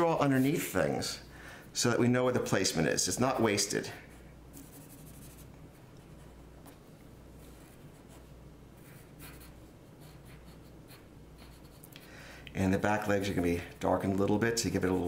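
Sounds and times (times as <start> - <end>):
low steady hum: 0.0 - 15.0
pencil scratching on paper: 4.1 - 6.3, 7.4 - 11.9.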